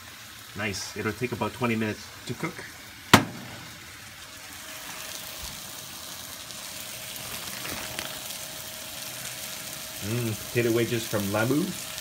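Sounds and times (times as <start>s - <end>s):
steaks sizzling in a pan: 0.0s - 12.0s
plastic bag rustling: 7.1s - 8.4s.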